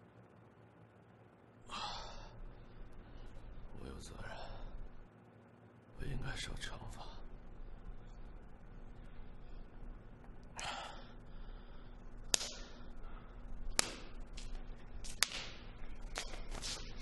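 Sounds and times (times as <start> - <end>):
hand slapping face: 12.2 - 12.9, 13.6 - 16.9.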